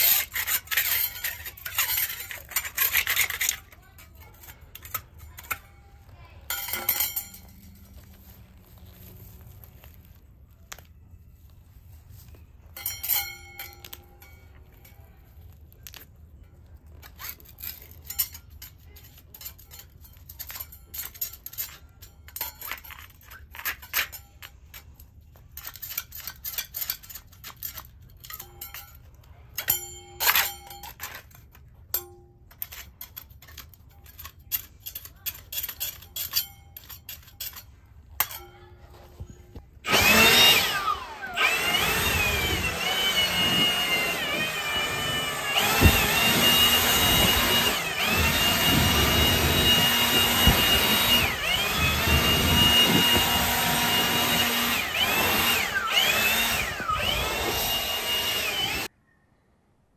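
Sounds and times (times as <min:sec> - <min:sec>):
hands scraping and tearing weeds: 0:00.0 - 0:20.8
short ringing clinks: 0:06.5 - 0:08.0, 0:12.8 - 0:14.6.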